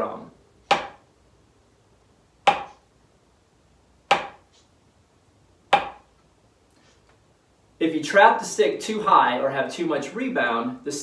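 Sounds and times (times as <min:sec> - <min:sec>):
drumsticks striking practice pad: 0:00.7 - 0:01.0, 0:02.4 - 0:02.8, 0:04.1 - 0:04.5, 0:05.7 - 0:06.1.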